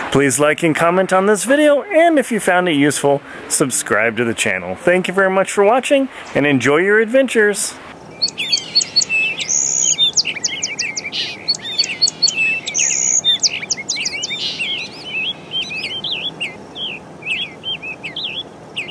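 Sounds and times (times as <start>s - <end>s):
faint steady hiss: 0.0s - 18.9s
songbirds singing and chirping: 7.9s - 18.9s.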